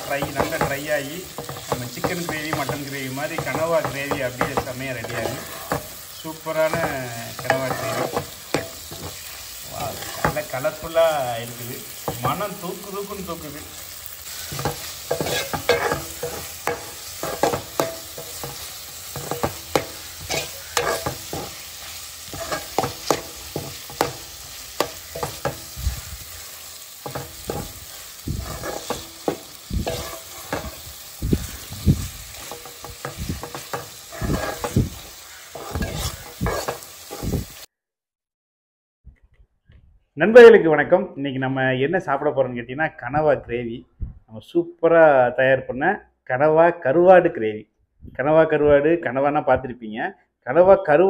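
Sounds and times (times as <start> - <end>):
metal spatula scraping a pot: 0.0 - 10.9, 14.2 - 37.6
frying sizzle: 0.0 - 37.7.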